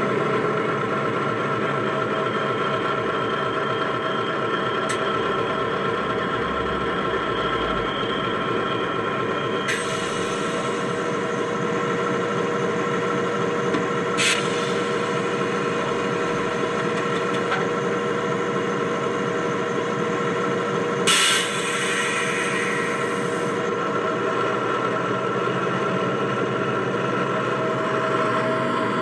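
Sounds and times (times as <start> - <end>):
diesel engine idling through speaker: 0.0 - 29.0
short hisses: 14.2 - 14.8.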